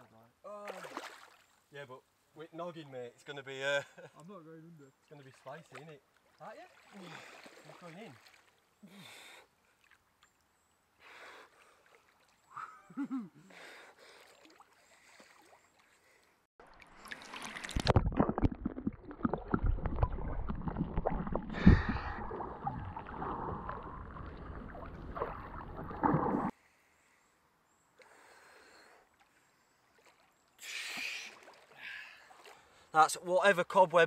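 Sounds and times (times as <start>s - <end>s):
faint water sounds: 0.0s - 34.0s
underwater bubbling: 16.7s - 26.5s
small knocks underwater: 17.4s - 26.5s.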